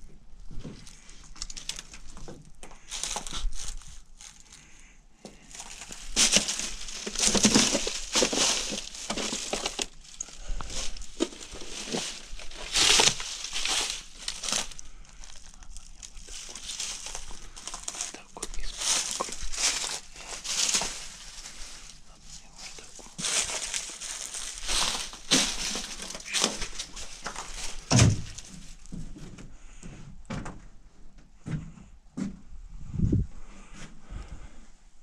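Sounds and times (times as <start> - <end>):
crunching and crinkling: 0.0 - 29.8.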